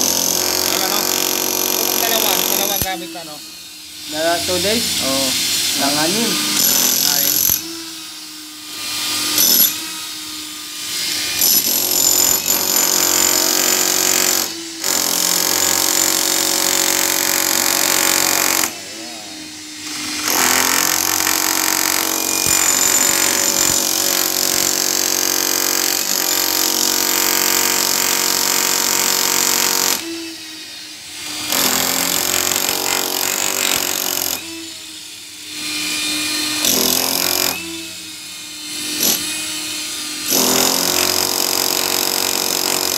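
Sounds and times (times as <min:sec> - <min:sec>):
breaker hammer chiselling concrete: 0:00.0 - 0:03.4, 0:05.9 - 0:07.8, 0:09.0 - 0:09.9, 0:11.0 - 0:19.0, 0:19.9 - 0:30.2, 0:31.2 - 0:34.5, 0:35.6 - 0:37.9, 0:38.7 - 0:39.5, 0:40.1 - 0:42.9.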